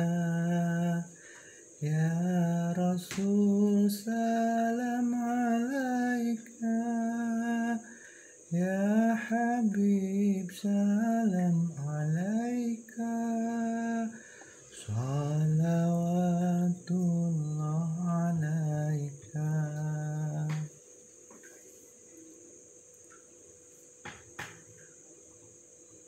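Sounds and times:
person singing devotional chant: 0.0s - 1.2s, 1.8s - 20.8s
singer breathing: 1.1s - 1.8s, 7.8s - 8.5s, 14.1s - 14.7s.

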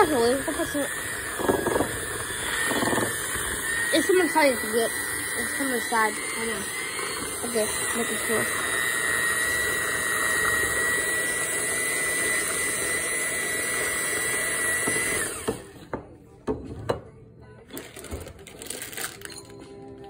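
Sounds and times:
electric hand mixer whining: 0.0s - 15.9s.

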